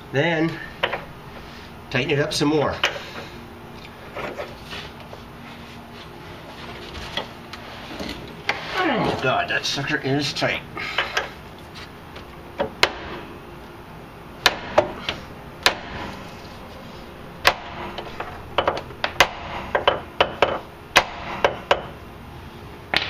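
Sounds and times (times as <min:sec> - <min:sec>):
metal-on-metal taps and knocks: 0:18.6 - 0:20.6.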